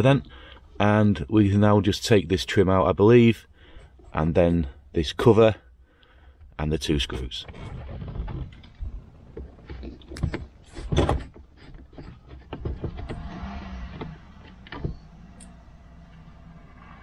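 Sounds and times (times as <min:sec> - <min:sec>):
plastic clicks scrapes and knocks: 0:07.4 - 0:15.5.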